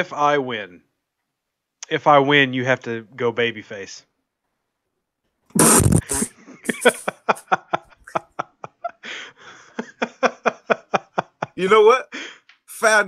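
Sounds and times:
men laughing: 0:06.0 - 0:11.9.

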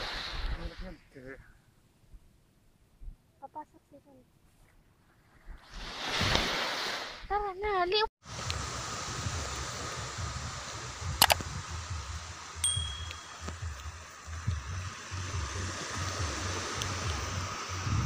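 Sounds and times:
small waves on shore: 0:00.0 - 0:01.0, 0:05.1 - 0:07.5, 0:08.2 - 0:18.0
sharp click: 0:11.2 - 0:11.4
short high ding: 0:12.6 - 0:13.6
wind buffeting microphone: 0:17.1 - 0:18.0.

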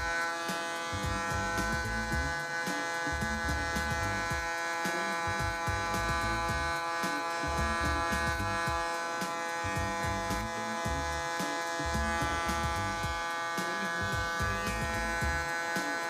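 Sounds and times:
electric hair clipper buzzing: 0:00.0 - 0:16.0.

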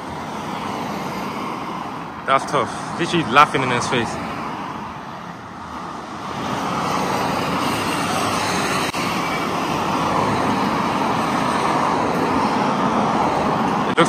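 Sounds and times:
passing cars: 0:00.0 - 0:14.0.

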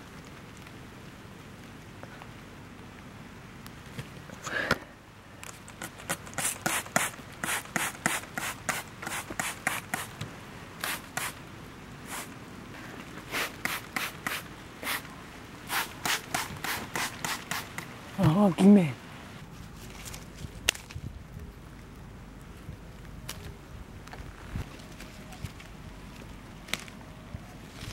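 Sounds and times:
spray bottle squirting: 0:05.8 - 0:10.2, 0:10.8 - 0:11.4, 0:13.3 - 0:15.1, 0:15.7 - 0:17.9.

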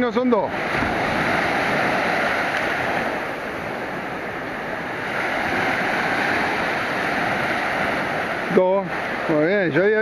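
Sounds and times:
small waves breaking on beach: 0:00.0 - 0:10.0.

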